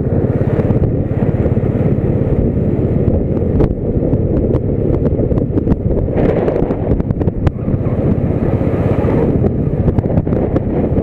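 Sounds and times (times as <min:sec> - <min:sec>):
vehicle engine and road noise: 0:00.0 - 0:11.0
wind rushing over microphone: 0:00.0 - 0:11.0.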